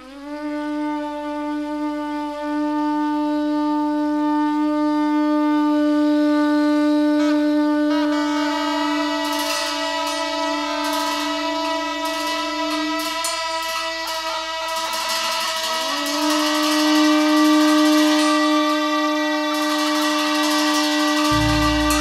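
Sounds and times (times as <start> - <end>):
wind instrument long note: 0.0 - 22.0
bright shimmer: 15.0 - 22.0
wavering bending melody line: 21.3 - 22.0.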